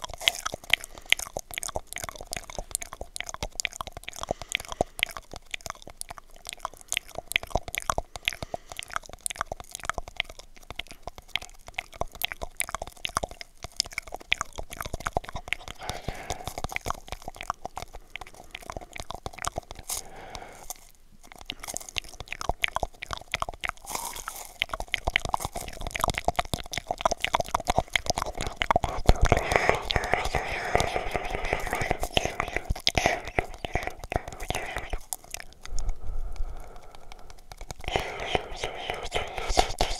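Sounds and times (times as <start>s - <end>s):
mouth clicks through tube: 0.0s - 39.9s.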